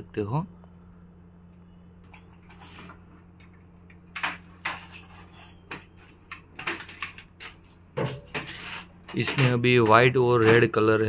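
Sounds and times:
steady low hum: 0:00.0 - 0:11.0
metal clunks on wooden bench: 0:08.0 - 0:08.5.

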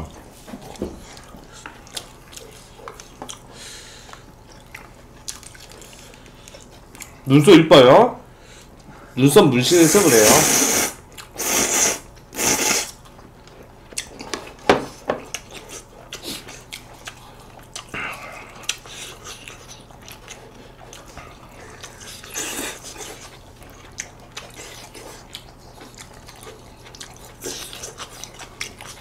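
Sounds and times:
chewing: 0:00.1 - 0:07.2, 0:11.1 - 0:11.4, 0:12.1 - 0:29.0
noodles slurped: 0:09.9 - 0:13.0.

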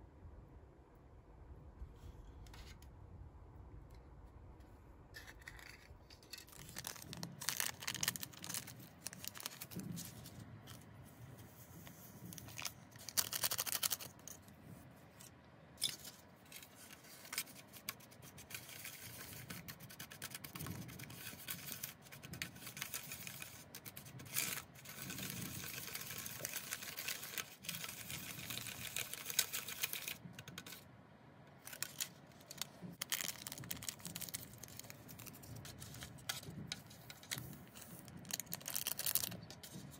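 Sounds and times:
plastic spoon scraping and stirring: 0:05.2 - 0:30.9, 0:31.6 - 0:39.9
foil packets crinkling and tearing: 0:06.5 - 0:10.8, 0:12.3 - 0:14.4, 0:16.6 - 0:30.8, 0:31.6 - 0:39.9.

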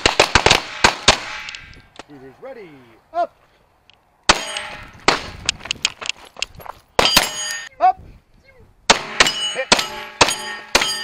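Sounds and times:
pistol shots: 0:00.0 - 0:01.6, 0:08.9 - 0:11.0
steel targets ringing: 0:04.3 - 0:04.9, 0:07.0 - 0:07.7, 0:09.0 - 0:11.0.

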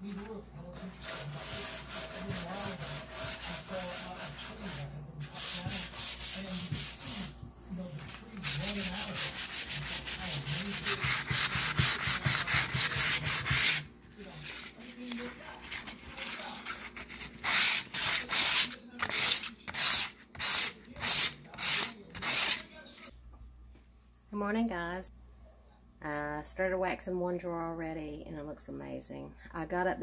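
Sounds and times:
hand sanding wood: 0:00.1 - 0:07.5, 0:08.1 - 0:13.9, 0:16.8 - 0:22.7.

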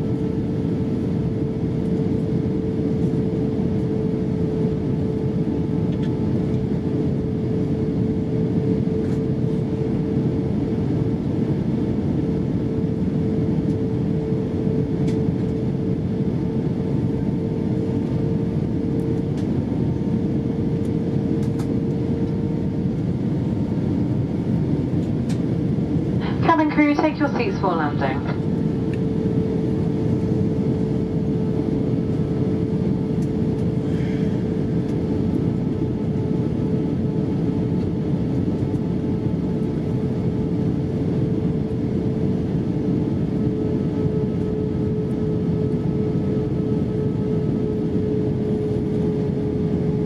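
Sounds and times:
jet engines: 0:00.0 - 0:50.0
airliner cabin airflow rush: 0:08.6 - 0:41.6
steady hum: 0:25.8 - 0:32.4.

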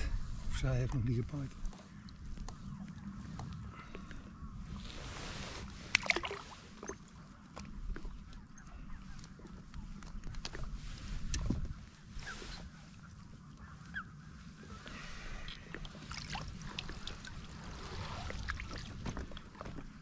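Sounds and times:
waterfowl honking and chirping: 0:12.2 - 0:15.7.

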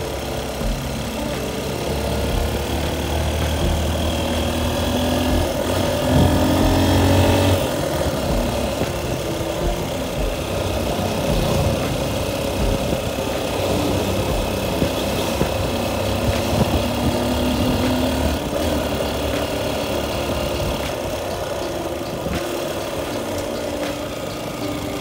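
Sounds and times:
motorcycle engine running: 0:00.0 - 0:25.0.

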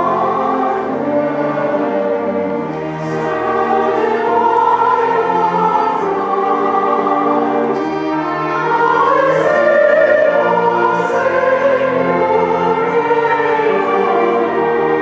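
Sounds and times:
choir singing: 0:00.0 - 0:15.0.

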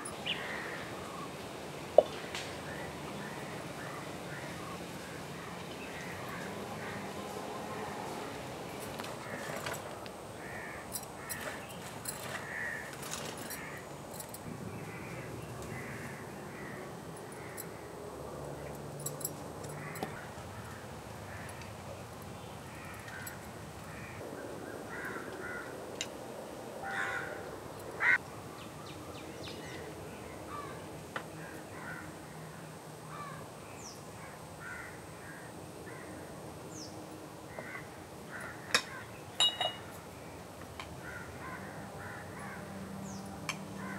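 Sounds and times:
birds calling: 0:00.0 - 0:01.4, 0:02.0 - 0:17.9, 0:26.8 - 0:36.1
sharp clink: 0:38.8 - 0:39.9
kitchen utensils clicking: 0:39.4 - 0:39.9.

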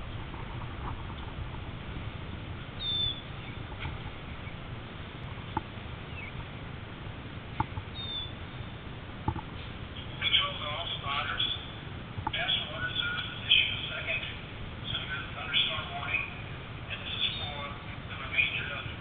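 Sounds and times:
low outdoor rumble: 0:00.0 - 0:19.0
bird chirps: 0:02.8 - 0:03.6, 0:06.1 - 0:06.4, 0:07.9 - 0:08.8.

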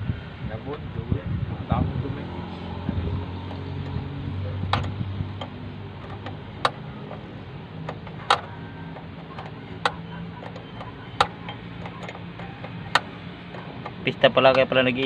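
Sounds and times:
wrench clicking on a bolt: 0:04.7 - 0:14.7.

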